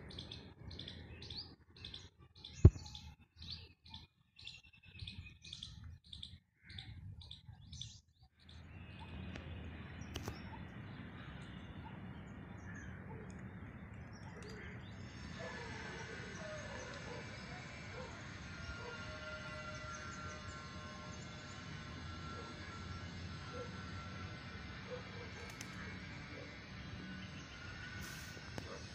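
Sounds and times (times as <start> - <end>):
birds chirping: 0.0 - 19.0
outdoor background hum: 0.0 - 28.9.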